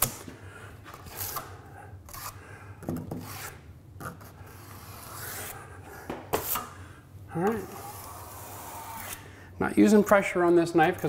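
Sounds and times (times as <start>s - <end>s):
taping knife scraping drywall: 2.1s - 2.4s, 3.1s - 5.6s, 7.6s - 9.2s.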